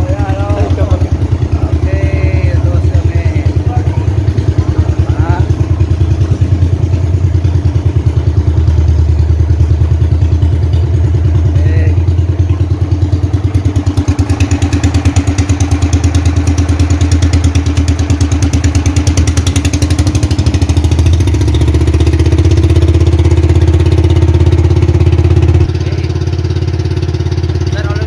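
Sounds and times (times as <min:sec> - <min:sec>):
boat engine running: 0:00.0 - 0:28.0.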